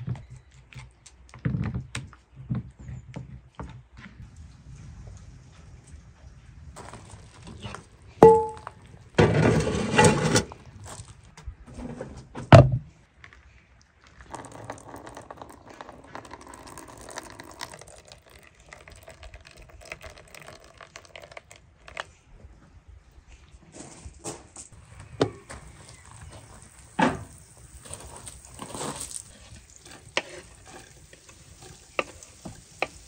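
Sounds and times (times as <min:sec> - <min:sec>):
scratchy handling noise: 0:27.6 - 0:33.0.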